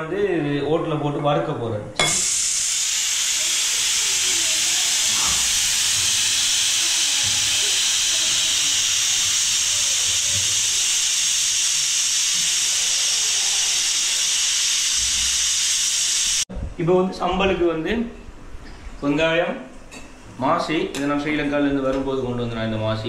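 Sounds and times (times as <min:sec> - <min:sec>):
pressure cooker steam hissing: 0:02.0 - 0:16.5.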